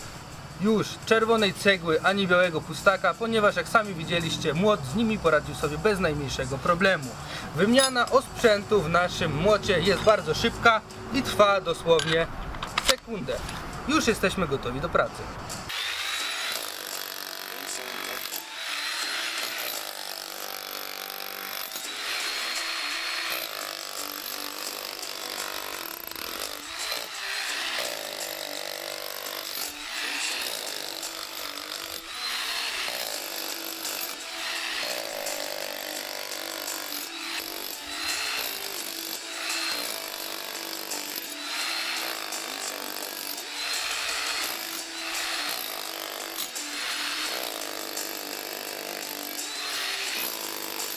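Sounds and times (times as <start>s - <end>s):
demolition hammer chiselling concrete: 15.7s - 50.9s.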